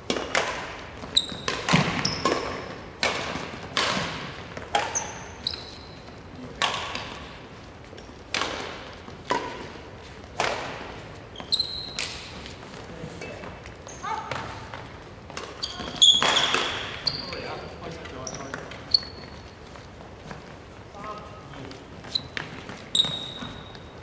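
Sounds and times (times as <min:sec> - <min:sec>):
racket hitting shuttlecock: 0:00.0 - 0:05.8, 0:06.5 - 0:07.4, 0:08.2 - 0:11.1, 0:11.8 - 0:12.5, 0:14.2 - 0:17.0
shoes squeaking on wooden floor: 0:01.0 - 0:02.7, 0:04.8 - 0:06.3, 0:11.1 - 0:14.6, 0:15.5 - 0:24.0.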